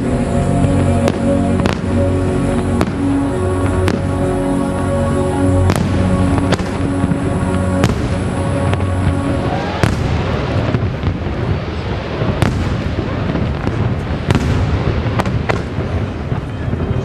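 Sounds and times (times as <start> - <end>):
music: 0.0 - 12.7
fireworks crackling: 0.0 - 17.0.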